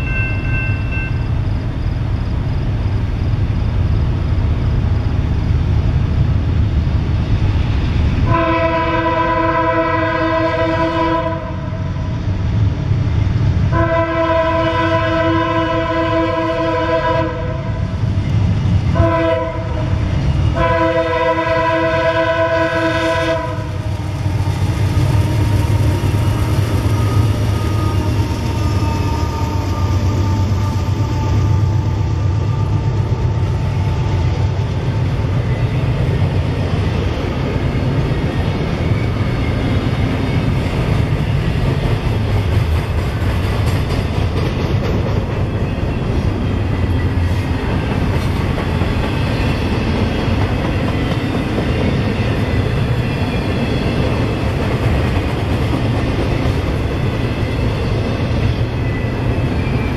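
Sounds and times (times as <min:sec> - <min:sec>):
train wheels rumbling on rail: 0:00.0 - 0:59.9
locomotive horn: 0:08.3 - 0:11.8, 0:13.7 - 0:17.8, 0:18.9 - 0:19.9, 0:20.6 - 0:23.8.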